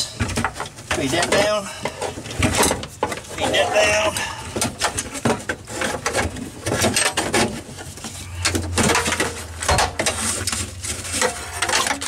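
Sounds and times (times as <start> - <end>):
knocks and rattles: 4.2 - 12.0.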